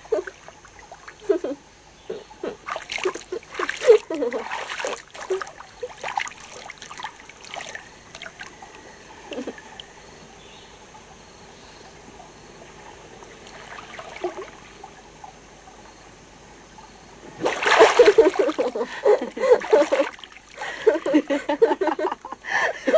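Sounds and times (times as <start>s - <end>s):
faint steady hiss: 0.0s - 22.9s
river water splashing: 2.2s - 9.9s, 12.2s - 15.3s, 17.2s - 21.8s.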